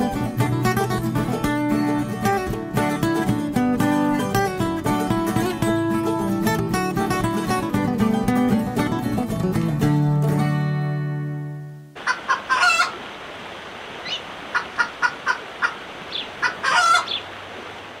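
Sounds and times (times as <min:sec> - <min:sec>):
acoustic guitar music: 0:00.0 - 0:12.0
chickens clucking: 0:12.0 - 0:13.0, 0:14.0 - 0:17.4
rooster crowing: 0:12.0 - 0:13.0, 0:16.4 - 0:17.2
flowing water: 0:12.0 - 0:18.0.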